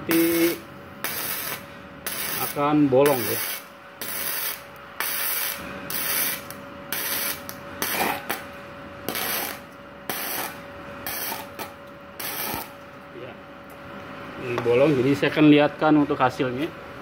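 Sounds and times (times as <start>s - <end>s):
welding arc crackling: 0.0s - 12.9s.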